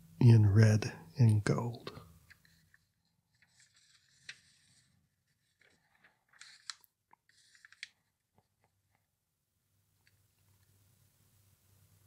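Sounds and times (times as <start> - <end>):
catalog pages turning: 1.9 - 9.0
soft paper clicks: 2.2 - 9.1.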